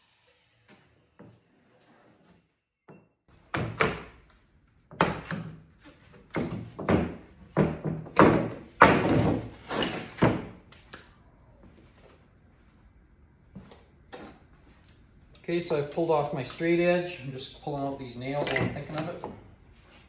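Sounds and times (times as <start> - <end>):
wooden boards knocking on metal: 6.3 - 9.5.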